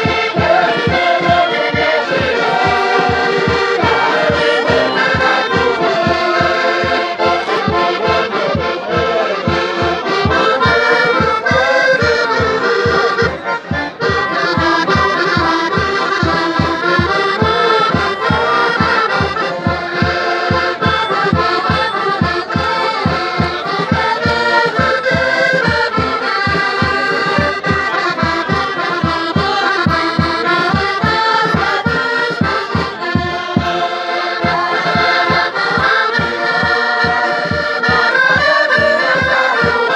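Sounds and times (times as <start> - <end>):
group singing in chorus: 0.0 - 15.0, 15.8 - 25.8, 29.1 - 39.9
bass drum beating: 0.0 - 39.0
accordion: 0.0 - 39.9
scraper rhythm: 0.0 - 39.9.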